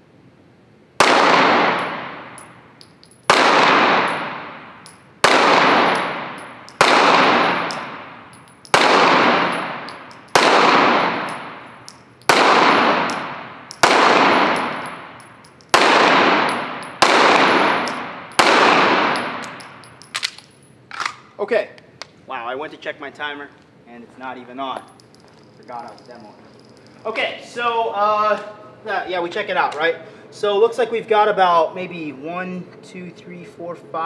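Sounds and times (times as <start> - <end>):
pistol shots echoing indoors: 1.0 - 2.5, 3.2 - 20.4.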